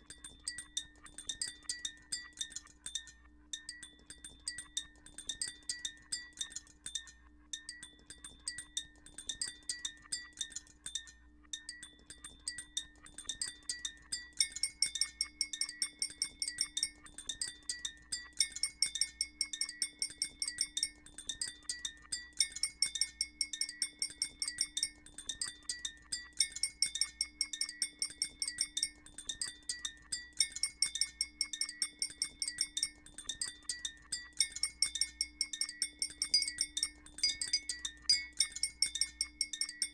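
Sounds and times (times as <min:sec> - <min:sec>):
rapid high chime-like pings: 0:11.6 - 0:39.9
bell-like tones: 0:17.7 - 0:39.9.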